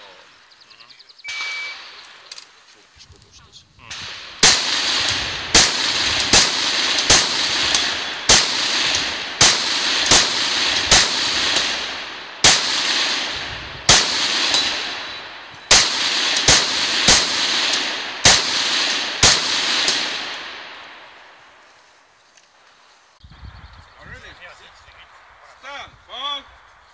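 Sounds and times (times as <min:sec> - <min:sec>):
rifle shots echoing: 0:03.9 - 0:21.5.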